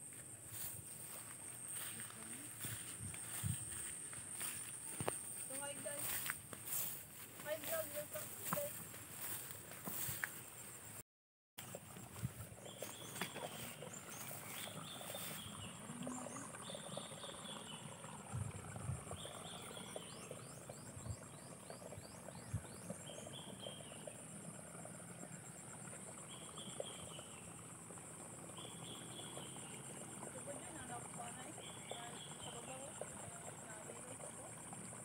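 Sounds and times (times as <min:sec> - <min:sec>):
soft footfalls in grass: 0:00.1 - 0:10.9.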